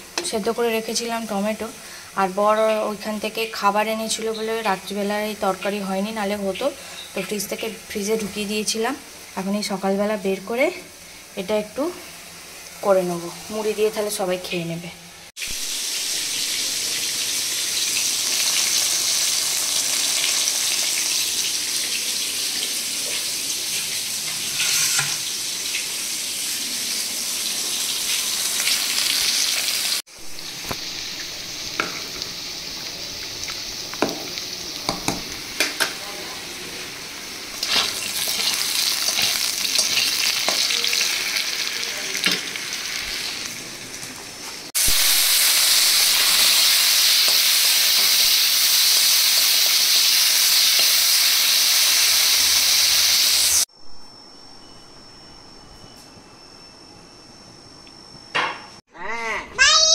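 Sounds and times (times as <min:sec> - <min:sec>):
rice boiling and bubbling: 0:15.3 - 0:53.8
fish frying in oil: 0:15.4 - 0:53.6.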